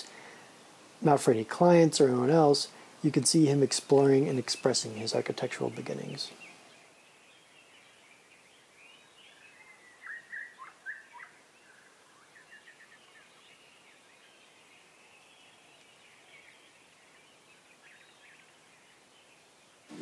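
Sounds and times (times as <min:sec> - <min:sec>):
faint hiss: 0:00.0 - 0:20.0
small birds singing and chirping: 0:00.0 - 0:20.0.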